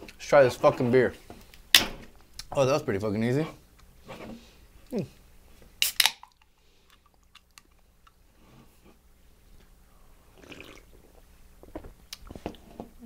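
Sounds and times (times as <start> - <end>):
can handling clicks: 5.8 - 6.3
can cracked open with fizz: 5.8 - 6.4
person sipping: 5.8 - 8.9, 10.2 - 11.3.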